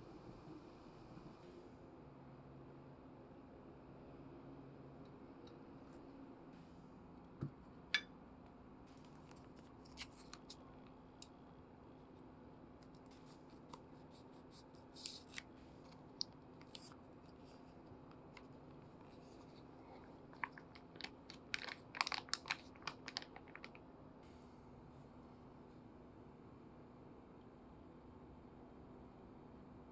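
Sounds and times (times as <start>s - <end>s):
foil sachet crinkling: 13.0s - 15.5s, 19.1s - 23.8s.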